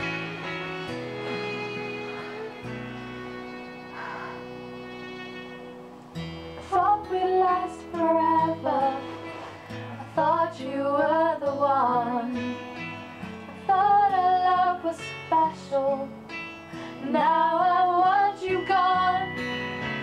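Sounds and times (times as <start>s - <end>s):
strummed acoustic guitar: 0.0s - 20.0s
women singing a slow ballad: 6.6s - 16.2s, 16.9s - 19.6s.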